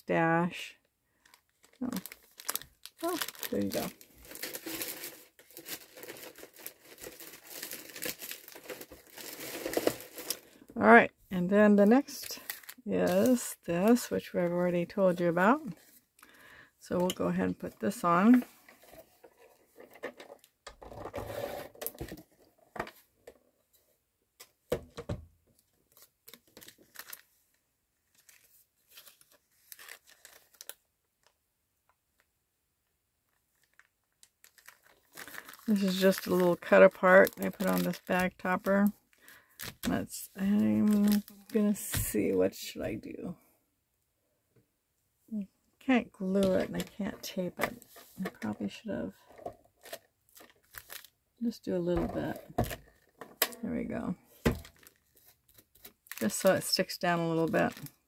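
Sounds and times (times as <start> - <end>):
cellophane bag crinkling: 1.2 - 10.6, 11.9 - 14.1, 25.9 - 27.4, 28.1 - 31.3, 33.3 - 41.9, 46.4 - 51.2, 52.2 - 58.0.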